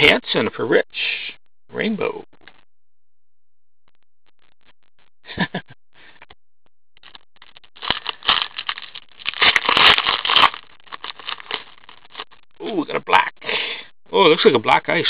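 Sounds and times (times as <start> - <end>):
foil wrapper tearing and crinkling: 7.0 - 12.3.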